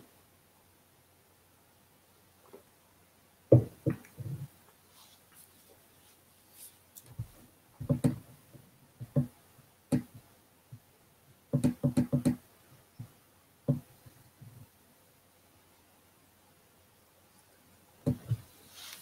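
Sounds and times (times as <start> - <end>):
dull knocks: 3.5 - 4.0.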